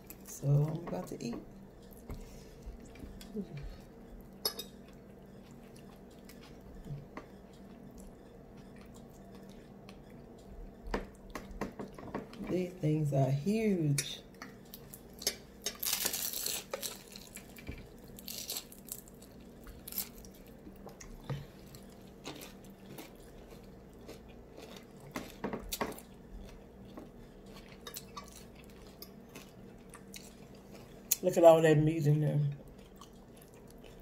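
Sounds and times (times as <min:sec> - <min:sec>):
fried roll crackling: 0:14.7 - 0:20.7.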